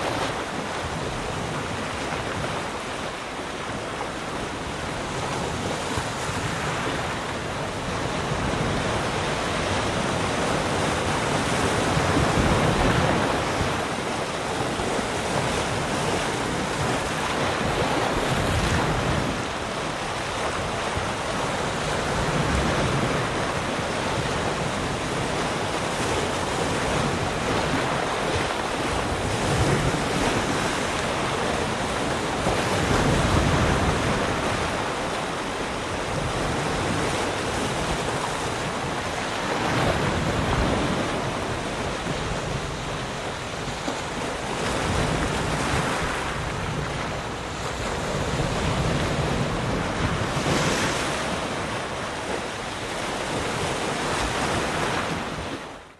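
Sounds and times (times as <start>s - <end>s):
waves breaking on stones: 4.4s - 55.7s.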